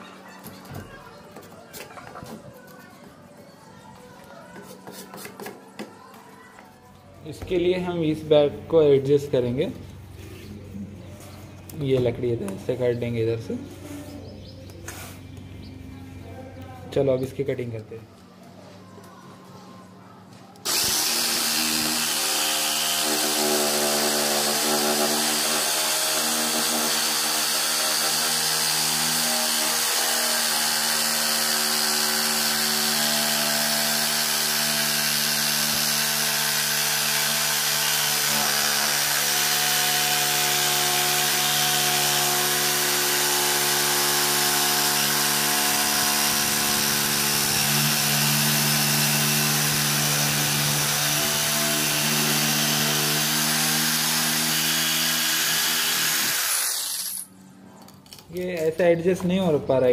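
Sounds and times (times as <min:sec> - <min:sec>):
electric jigsaw sawing wood: 0:20.6 - 0:57.2.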